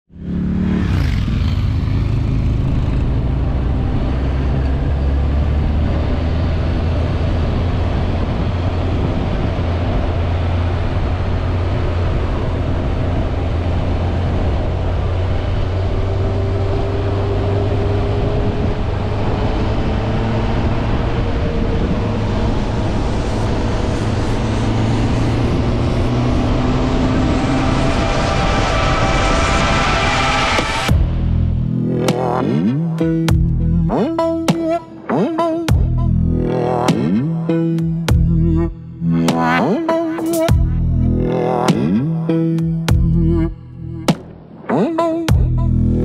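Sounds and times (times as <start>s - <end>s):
motorcycle engine running: 0.1s - 4.9s, 30.9s - 39.6s, 40.3s - 44.3s.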